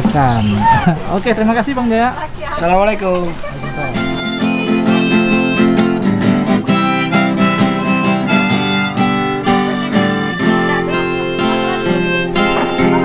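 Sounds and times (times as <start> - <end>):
acoustic guitar strumming: 2.9 - 13.0
harmonica melody: 3.5 - 13.0.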